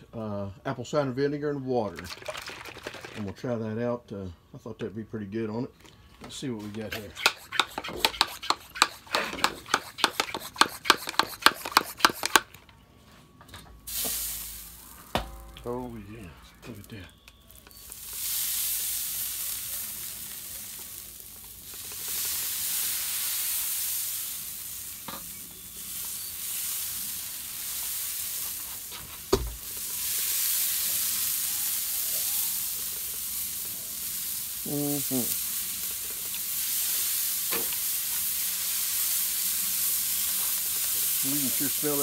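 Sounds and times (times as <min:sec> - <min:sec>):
sprayer hissing: 0:06.9 - 0:12.5, 0:13.9 - 0:15.2, 0:17.6 - 0:42.0.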